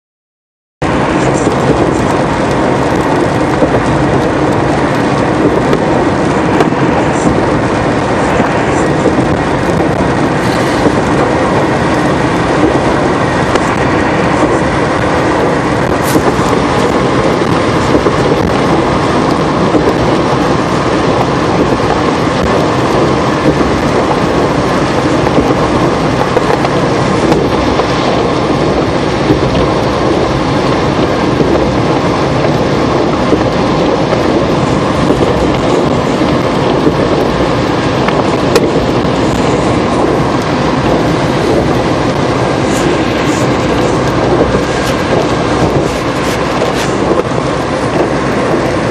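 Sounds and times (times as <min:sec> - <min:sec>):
car engine: 0:00.8 - 0:48.9
tyres hissing on wet road: 0:00.8 - 0:48.9
wind noise: 0:00.8 - 0:48.9.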